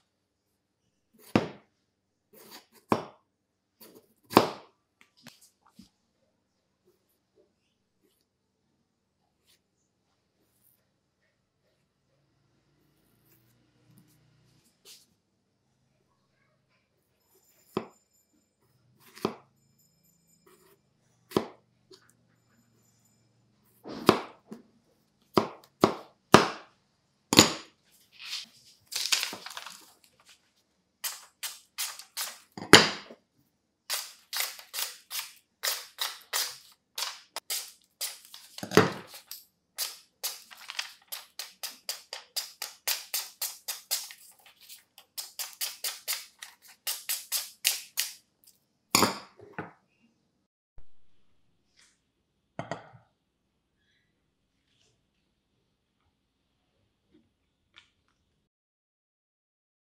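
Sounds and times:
knife slicing paper: 28.1s - 30.4s, 31.0s - 33.1s, 33.9s - 48.2s.

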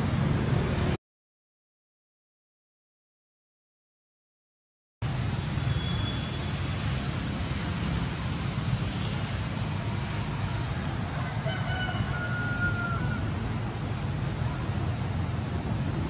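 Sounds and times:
distant rooster crowing: 10.6s - 13.5s.

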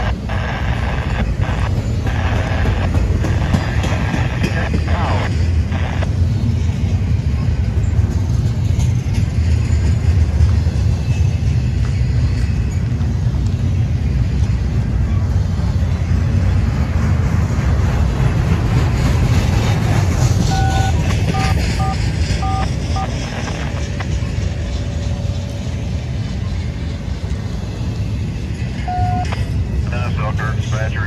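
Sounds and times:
freight train wheels rumbling: 0.0s - 31.0s
short electronic beeps: 20.4s - 23.3s, 28.8s - 29.3s.

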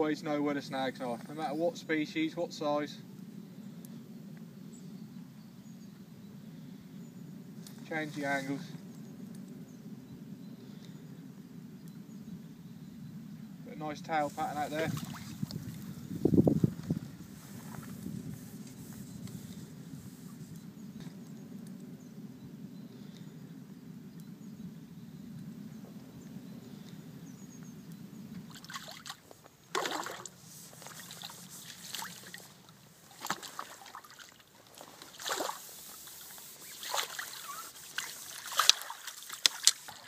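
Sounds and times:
fish splashing in water: 14.9s - 15.5s, 28.5s - 30.4s, 33.1s - 40.0s.

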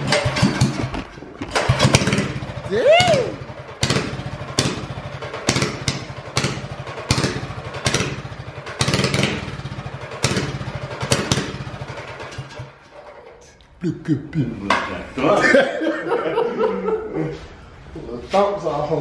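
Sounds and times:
small engine sputtering: 0.0s - 13.6s.

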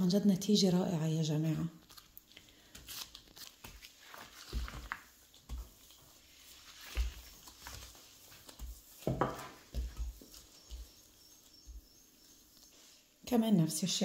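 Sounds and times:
rolling pin thumping dough: 6.8s - 11.8s.

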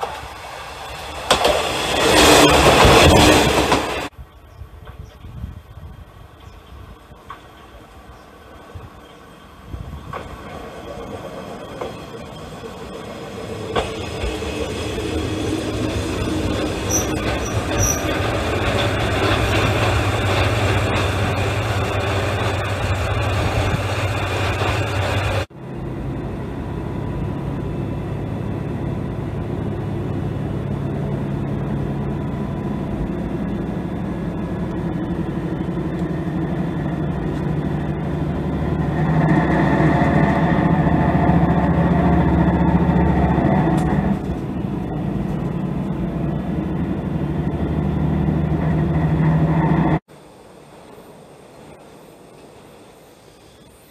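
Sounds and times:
diesel railcar engine drone: 0.0s - 53.9s
short high squeaks: 16.5s - 18.2s.

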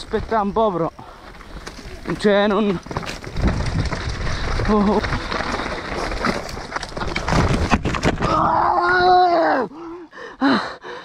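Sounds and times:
bike rattling down rocky trail: 0.0s - 8.6s
bike crashing onto rocks: 1.3s - 8.7s
gasping breaths: 9.7s - 11.0s.

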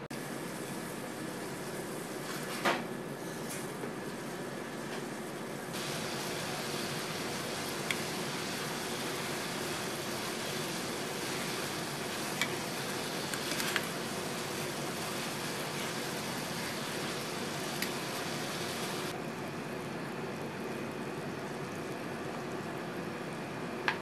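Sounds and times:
water simmering in a pot: 5.8s - 19.2s.

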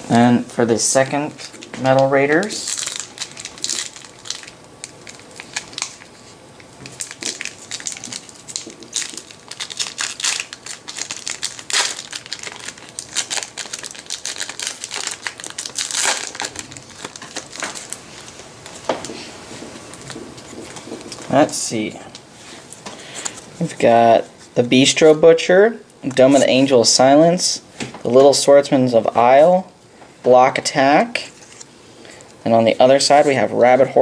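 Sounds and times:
foil wrapper crinkling: 1.0s - 21.6s.

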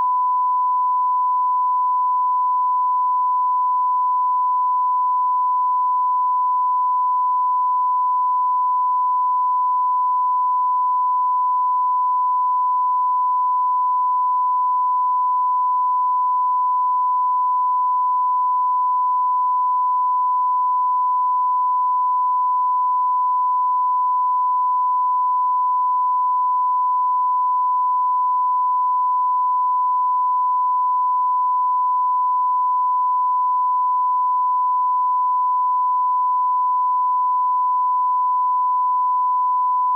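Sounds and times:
censor bleep tone: 0.0s - 39.9s.

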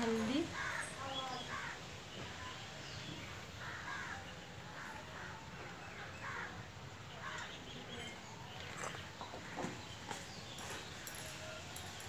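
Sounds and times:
crows cawing: 0.5s - 1.9s, 3.6s - 6.6s, 7.2s - 7.6s.

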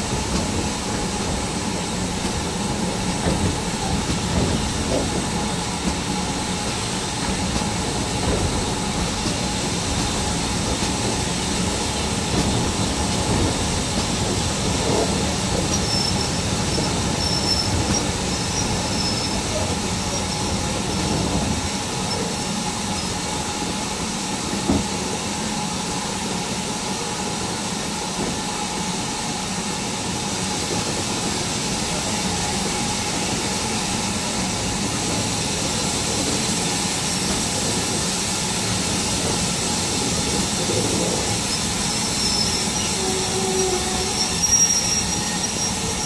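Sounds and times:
train carriage wheels on rails: 0.0s - 46.0s
high wheel squeal: 15.7s - 20.6s, 41.4s - 46.0s.

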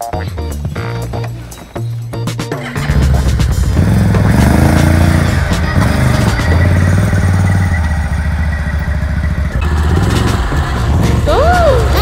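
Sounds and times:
small motorbike engine running: 2.6s - 12.0s.

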